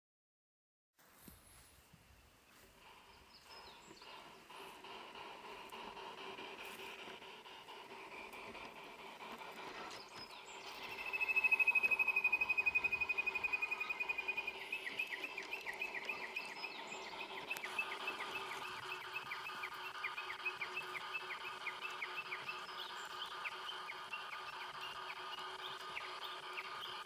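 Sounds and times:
faint steady hum: 1.0 - 27.0
animal trill and chirps: 2.8 - 27.0.

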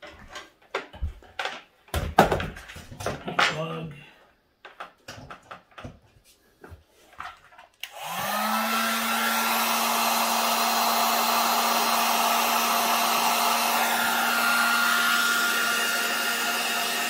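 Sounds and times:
heat gun fan hissing: 7.8 - 17.0.

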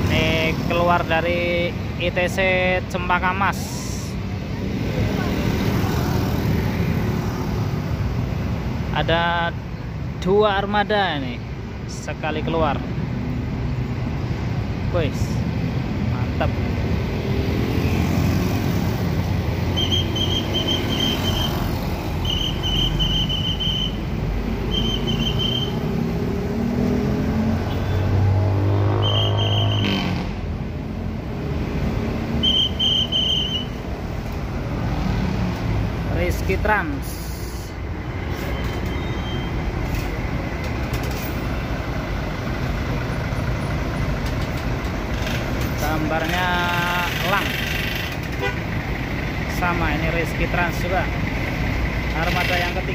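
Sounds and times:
bus engine rumbling: 0.0 - 52.9
diesel coach engine rumbling: 18.8 - 27.5, 35.6 - 52.9
trilled high-pitched whistle: 22.2 - 24.0, 24.7 - 25.8, 32.4 - 33.8.

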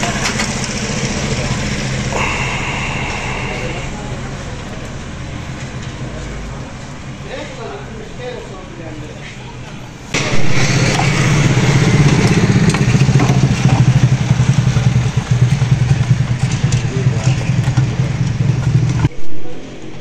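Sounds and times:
engine idling: 0.0 - 8.8, 9.9 - 19.1.

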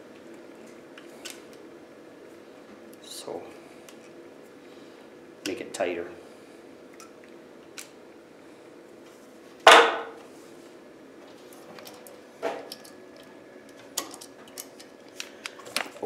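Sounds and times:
sharp knock: 9.7 - 10.1.

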